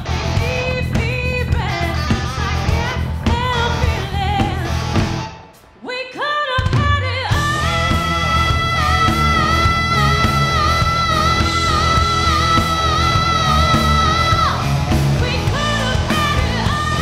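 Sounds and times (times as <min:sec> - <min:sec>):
rock band playing: 0:00.0 - 0:05.8, 0:07.3 - 0:17.0
lead vocals: 0:00.0 - 0:17.0
sliding electric guitar notes: 0:07.4 - 0:17.0.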